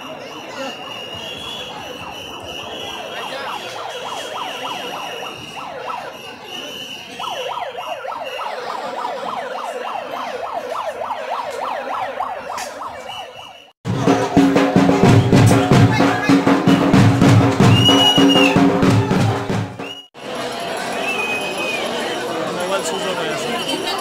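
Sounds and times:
crowd noise: 0.0 - 24.0
siren-like electronic wailing: 1.0 - 13.8.

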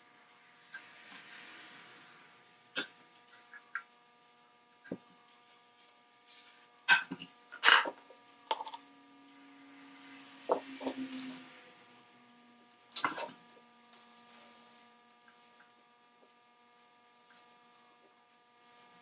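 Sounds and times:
metal tools knocking on workbench: 6.9 - 8.8.

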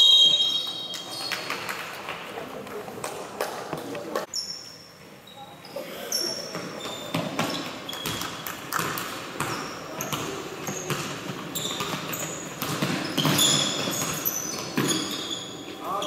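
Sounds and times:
sneaker squeaks on floor: 0.0 - 1.7, 4.3 - 8.5, 9.4 - 16.0
basketball bouncing on court: 6.5 - 15.2.

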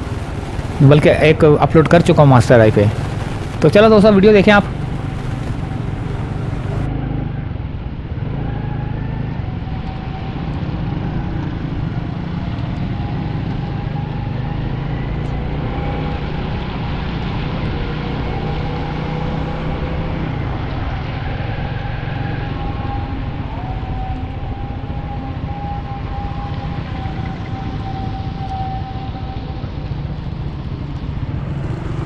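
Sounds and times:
tyres on wet road: 0.0 - 32.0
wind: 0.0 - 32.0
motorcycle engine running: 2.1 - 15.6.

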